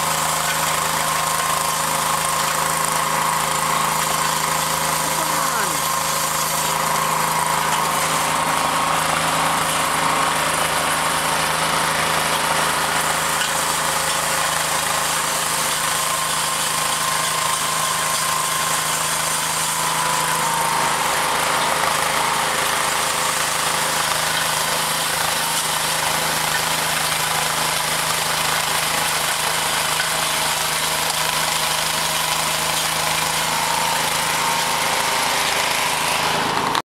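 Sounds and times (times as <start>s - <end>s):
snowblower engine running: 0.0s - 36.8s.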